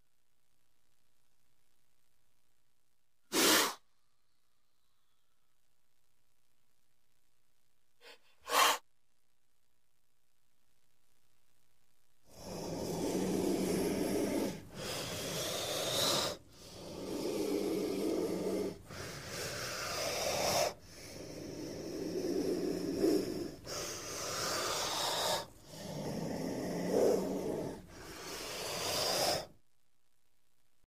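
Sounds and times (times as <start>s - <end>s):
snake hissing: 3.3s - 3.9s, 8.0s - 8.8s, 12.3s - 29.5s.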